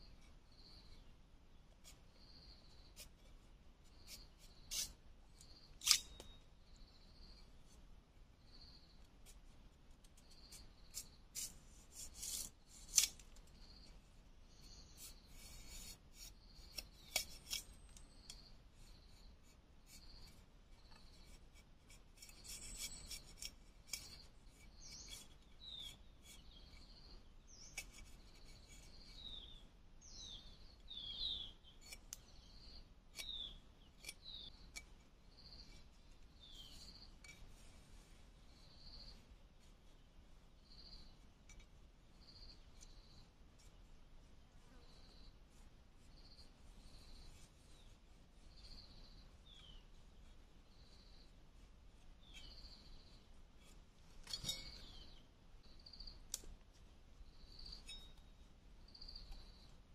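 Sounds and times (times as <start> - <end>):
metal blade scraping bamboo: 4.0 - 6.4, 10.2 - 13.9, 14.6 - 19.2, 19.8 - 29.4, 31.2 - 37.6, 52.2 - 55.2, 57.5 - 58.4
birds chirping: 22.4 - 41.2, 54.2 - 56.3.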